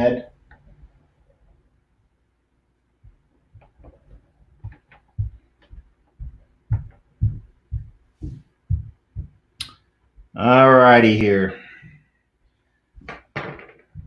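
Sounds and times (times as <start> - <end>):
soft low thumps: 3.0 - 9.6.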